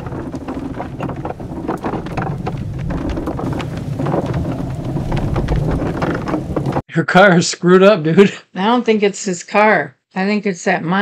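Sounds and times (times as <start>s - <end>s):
car interior rumble: 0.0s - 6.8s
rapid clattering rattle: 0.0s - 6.8s.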